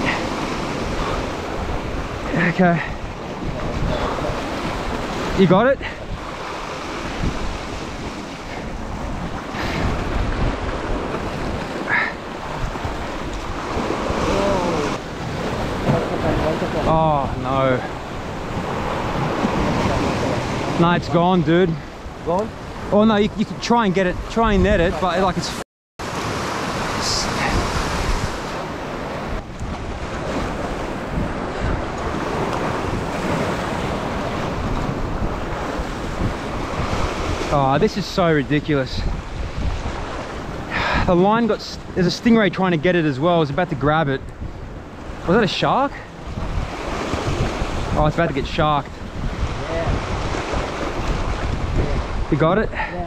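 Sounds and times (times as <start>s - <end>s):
wind buffeting microphone: 0.0s - 25.4s, 26.0s - 53.0s
ocean surf on rocks: 0.0s - 53.0s.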